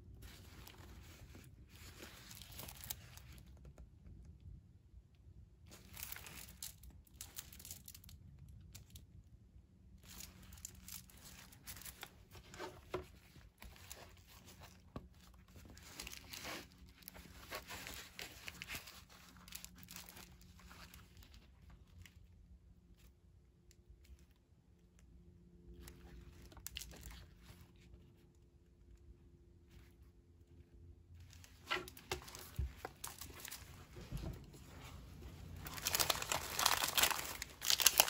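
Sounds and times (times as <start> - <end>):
cardboard box rustling and scraping: 11.5 - 18.6.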